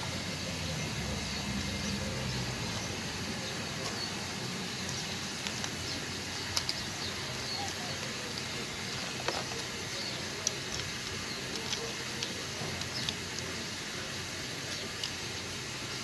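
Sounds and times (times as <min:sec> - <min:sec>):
background hiss: 0:00.0 - 0:16.0
plastic toy parts clicking: 0:04.8 - 0:13.8, 0:14.6 - 0:15.6.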